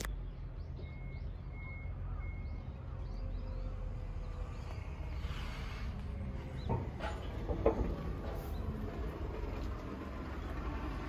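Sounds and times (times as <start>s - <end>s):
faint bird chirps: 0.1s - 5.6s.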